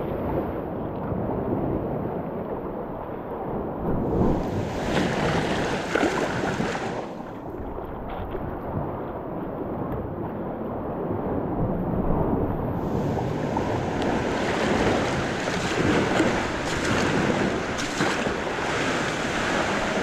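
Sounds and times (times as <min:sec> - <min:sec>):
water lapping around hull: 0:00.0 - 0:20.0
wind buffeting microphone: 0:00.0 - 0:20.0
paddle splashing into water: 0:04.0 - 0:08.2, 0:12.8 - 0:20.0.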